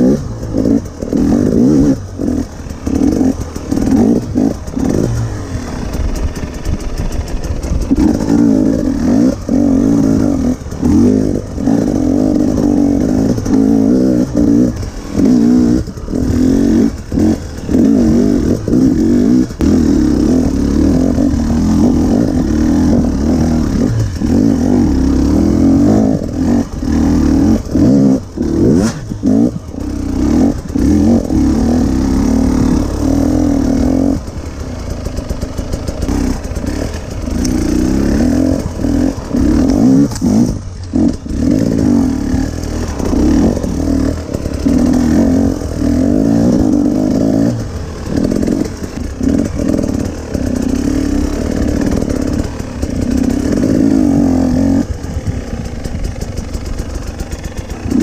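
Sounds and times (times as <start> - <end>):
two-stroke motorcycle engine revving: 0.0 - 58.0.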